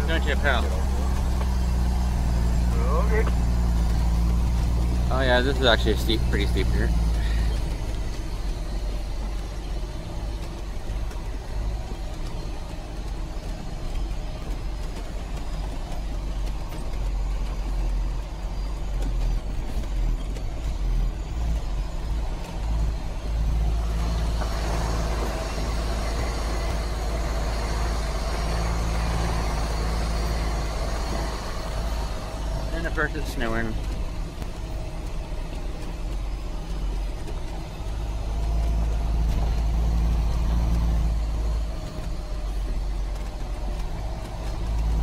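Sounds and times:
truck engine and road rumble: 0.0 - 45.0.

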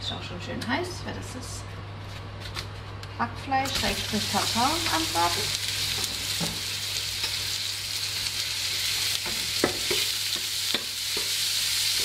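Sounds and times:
meat sizzling in a frying pan: 3.7 - 12.0.

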